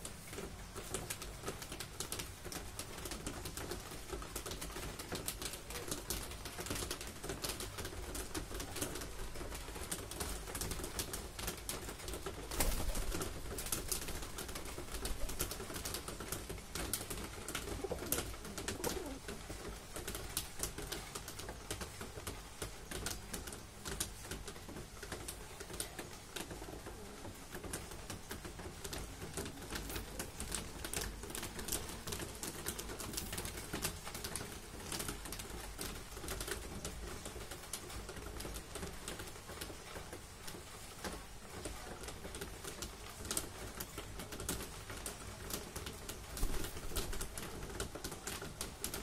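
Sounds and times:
beaks pecking on tiled floor: 0.0s - 49.0s
pigeons cooing: 17.5s - 19.4s.

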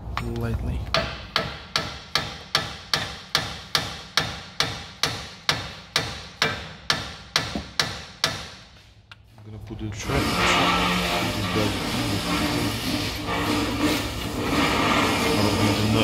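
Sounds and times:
hammer striking metal: 0.9s - 8.6s.

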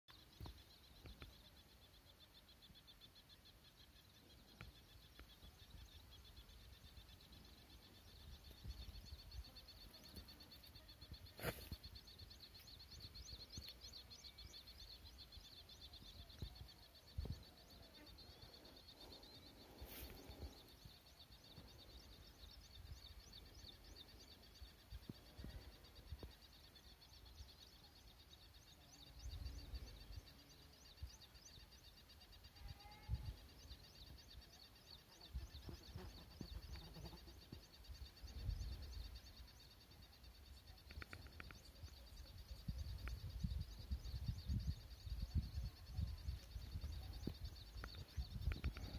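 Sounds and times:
insects chirring: 0.1s - 48.9s
sharp clicks: 40.8s - 41.6s, 47.8s - 48.9s.

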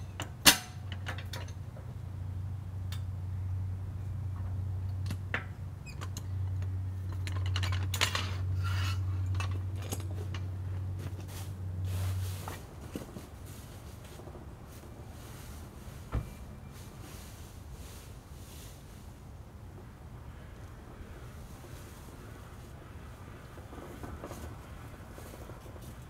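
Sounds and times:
metal jack clanking and clicking: 0.0s - 1.6s
steady low hum: 0.0s - 26.0s.

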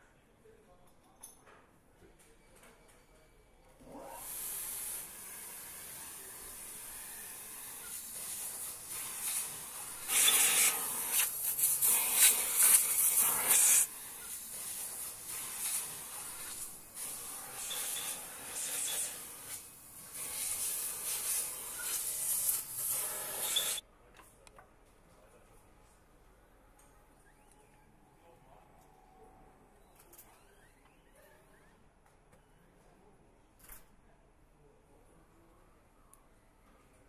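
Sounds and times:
compressed air blow gun hissing: 4.2s - 23.8s.

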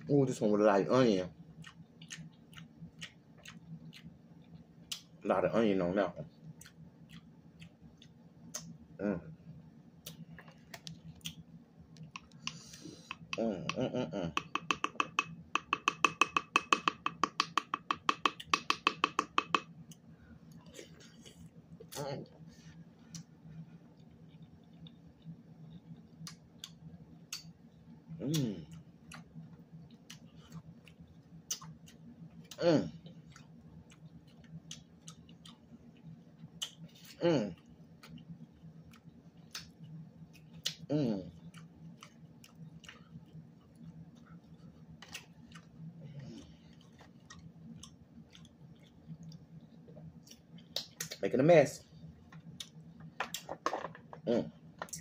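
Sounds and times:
chewing mouth sounds: 1.6s - 5.2s, 6.5s - 8.7s, 28.3s - 51.2s
person humming: 13.3s - 14.5s, 40.9s - 41.3s.

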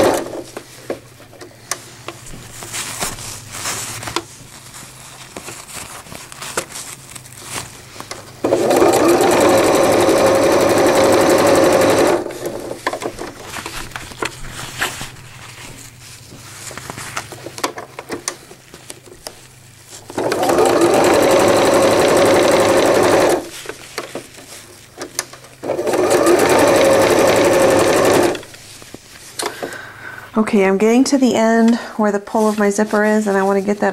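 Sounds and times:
electric sewing machine stitching: 0.0s - 0.5s, 8.4s - 13.1s, 20.0s - 23.6s, 25.6s - 28.6s
fabric rustling: 0.1s - 17.6s, 18.4s - 29.4s.

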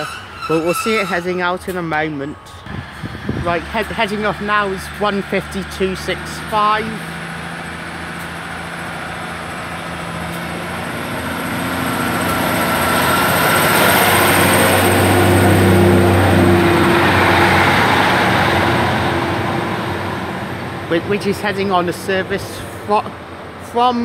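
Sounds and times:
diesel train accelerating: 0.0s - 24.0s
high whine rising in pitch: 10.6s - 19.9s.

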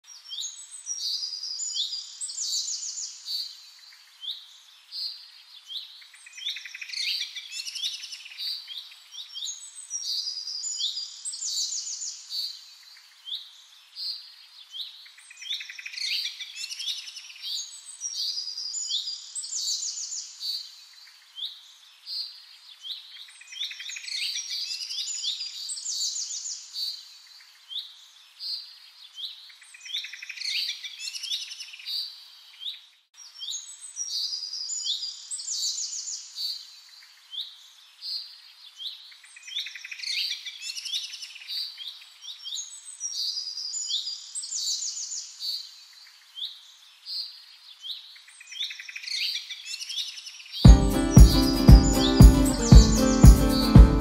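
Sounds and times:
birds chirping and singing: 50.8s - 54.0s.

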